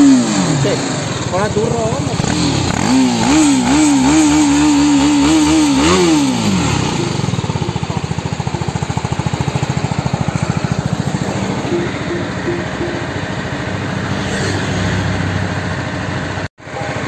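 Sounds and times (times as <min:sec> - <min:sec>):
motorcycle engine revving and idling: 0:00.0 - 0:17.0.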